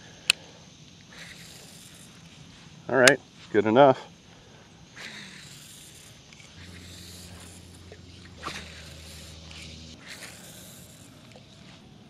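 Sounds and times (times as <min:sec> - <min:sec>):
fishing reel whirring: 0:01.0 - 0:02.4, 0:04.4 - 0:12.0.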